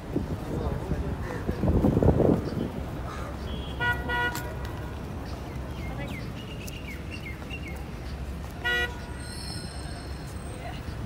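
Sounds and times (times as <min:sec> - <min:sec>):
street traffic rumble: 0:00.0 - 0:11.0
small birds chirping: 0:05.2 - 0:08.4.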